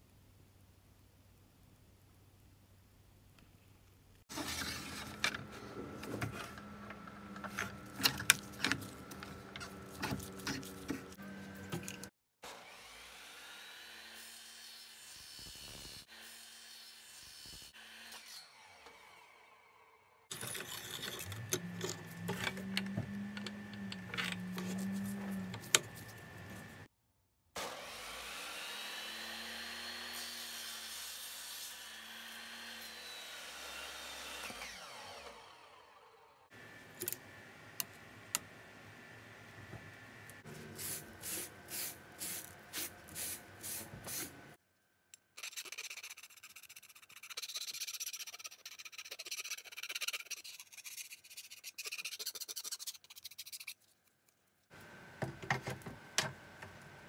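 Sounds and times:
metal scraping on metal: 20.3s - 22.6s
miter saw motor whining: 32.3s - 36.4s.

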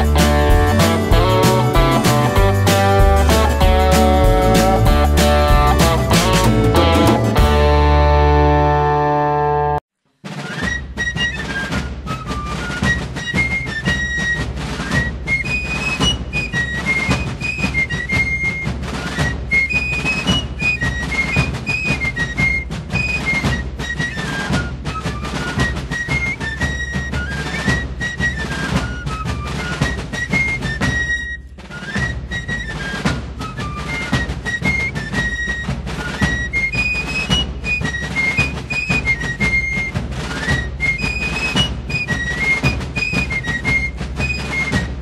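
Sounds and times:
rapid snare drumming: 0.0s - 8.2s, 10.2s - 45.0s
fife melody: 0.0s - 45.0s.

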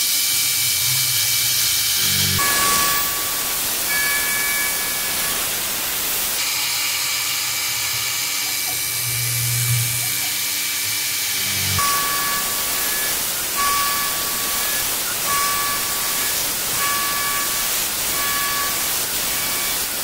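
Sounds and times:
high machine whines: 0.0s - 20.0s
mist coolant air hiss: 0.0s - 20.0s.

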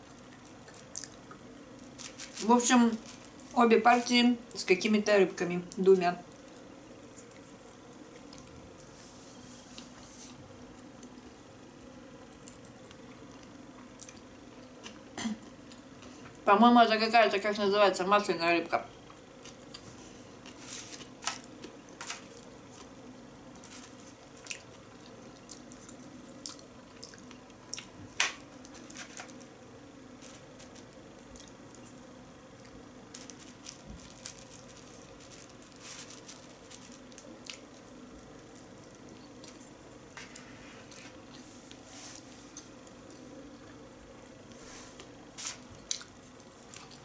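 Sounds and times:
low steady hum: 0.0s - 47.0s
wet chewing and mouth smacks: 24.4s - 28.0s.

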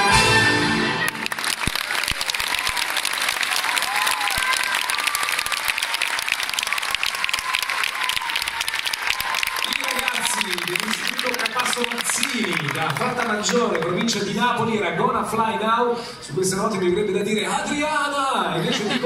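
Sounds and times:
audience applauding: 0.0s - 14.6s.

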